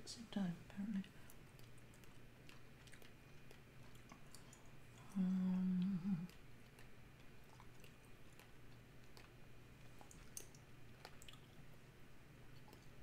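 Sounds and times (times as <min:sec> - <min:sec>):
woman humming: 0:05.0 - 0:06.4.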